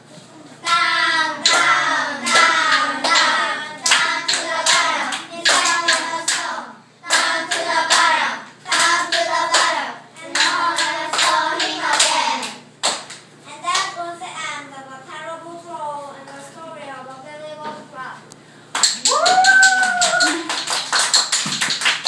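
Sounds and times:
hands clapping: 2.3s - 6.4s, 10.3s - 13.9s, 18.7s - 22.0s.

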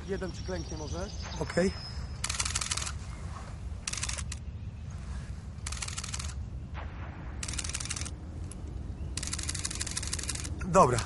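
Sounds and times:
low steady rumble: 1.2s - 11.0s
camera shutter burst clicks: 2.2s - 3.0s, 3.9s - 4.4s, 5.6s - 6.4s, 7.4s - 8.2s, 9.2s - 10.5s.

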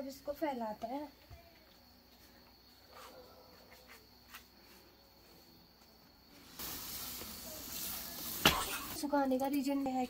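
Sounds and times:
dried maize kernels rustling: 6.3s - 10.0s.

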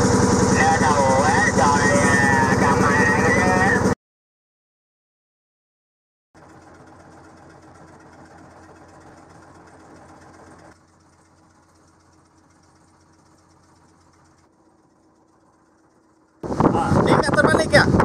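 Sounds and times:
boat engine humming: 0.0s - 4.0s, 6.4s - 18.0s.

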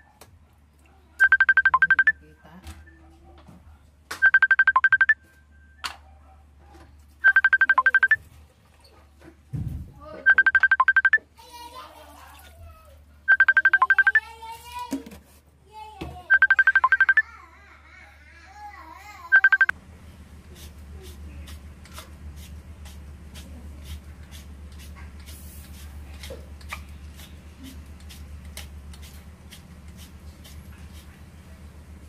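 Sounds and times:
electronic beeps: 1.2s - 2.2s, 4.2s - 5.2s, 7.2s - 8.2s, 10.2s - 11.2s, 13.3s - 14.2s, 16.3s - 17.2s, 19.3s - 19.7s.

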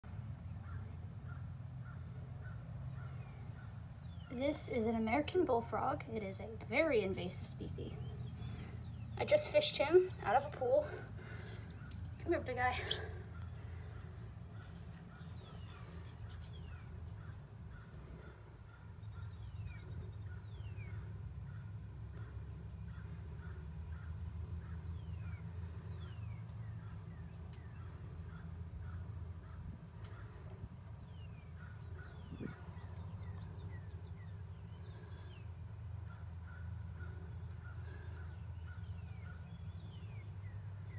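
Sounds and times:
steady low hum: 0.0s - 40.9s
rapid clicking bird chatter: 6.6s - 21.6s, 22.2s - 34.4s.

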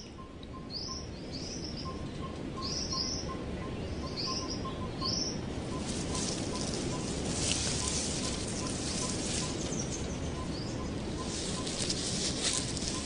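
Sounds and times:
bird chirping: 0.0s - 13.0s
low background hiss: 0.0s - 13.0s.

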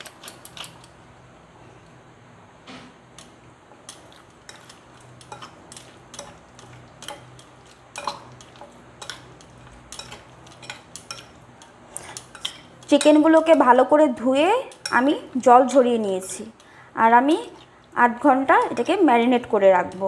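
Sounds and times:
chicken mixed with marinade: 3.2s - 13.7s.

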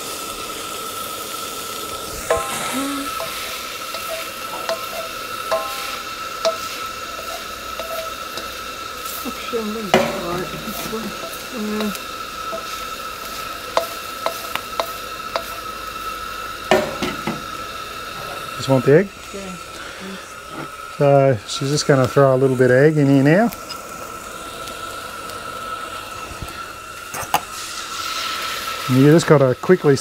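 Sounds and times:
gas burner hiss: 0.0s - 30.0s
vegetables sizzling in wok: 0.0s - 30.0s
metal spoon scraping pan: 2.3s - 8.6s, 9.9s - 12.8s.

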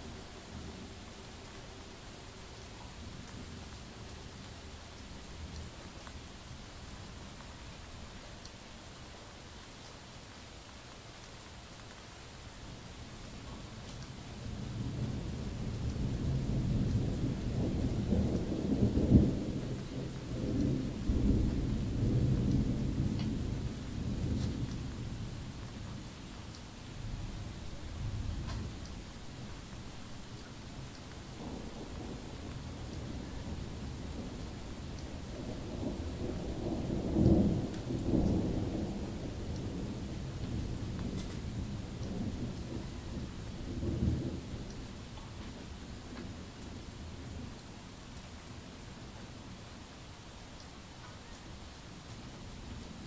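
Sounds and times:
steady rain: 0.0s - 53.0s
thunder rumbling and cracking: 14.4s - 26.2s, 26.9s - 47.6s.

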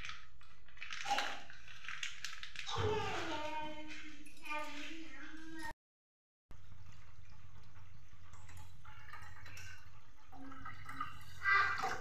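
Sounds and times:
water trickling into a pan: 6.5s - 12.0s.

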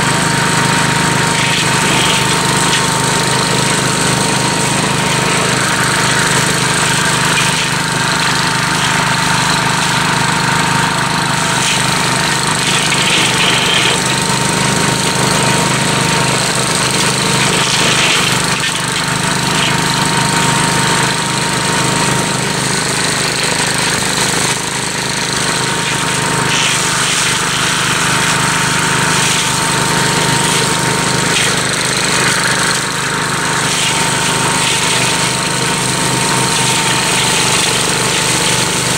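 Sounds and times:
mower cutting brush: 0.0s - 38.9s
walk-behind tractor running: 0.0s - 38.9s.

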